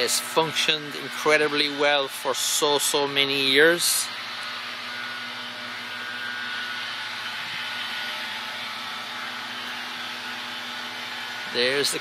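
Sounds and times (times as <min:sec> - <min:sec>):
refrigeration machinery whirring: 0:00.0 - 0:12.0.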